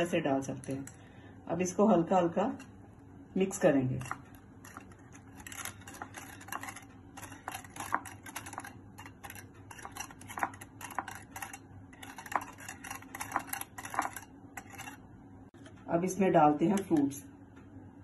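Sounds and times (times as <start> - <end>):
whisk clicking against bowl: 4.0 - 15.0.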